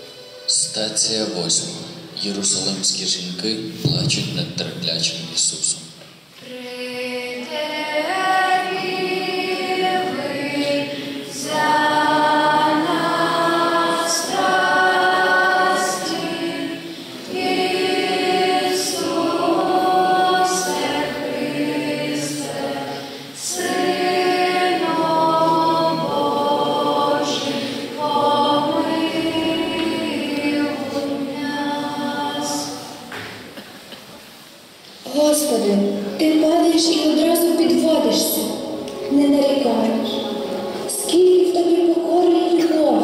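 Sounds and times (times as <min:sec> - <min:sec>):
choir singing: 0:06.4 - 0:33.6, 0:36.3 - 0:43.0.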